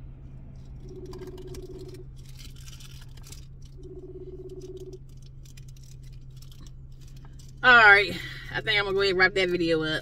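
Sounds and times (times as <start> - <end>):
low hum: 0.0 - 10.0
phone ringback tone: 3.8 - 5.0.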